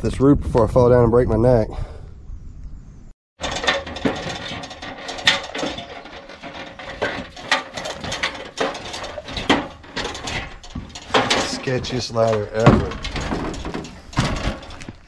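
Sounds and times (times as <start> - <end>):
ladder rattling and clanking: 3.4 - 15.0.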